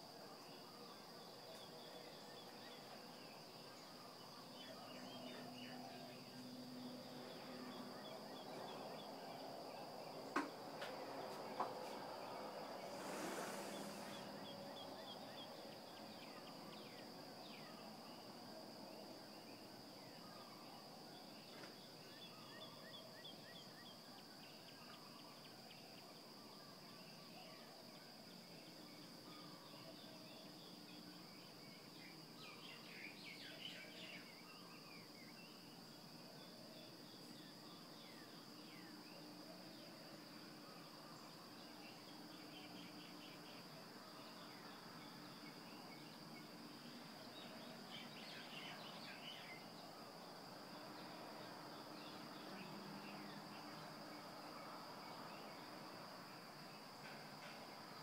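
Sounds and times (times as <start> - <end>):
brief rushing hiss: 12.7 - 14.6.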